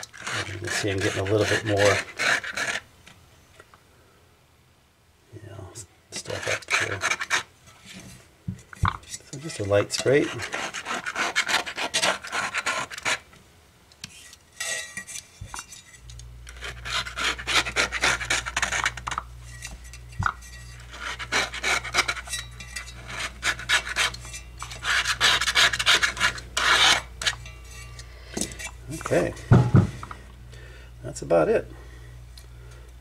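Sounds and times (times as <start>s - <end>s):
knife scraping paper cone: 0.0s - 2.9s, 6.2s - 8.0s, 9.2s - 13.3s, 14.0s - 29.3s.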